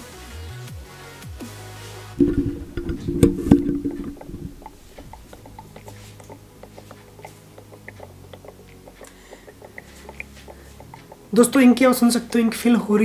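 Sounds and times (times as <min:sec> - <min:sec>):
ink draining with clicks and gurgles: 0:02.2 - 0:11.1.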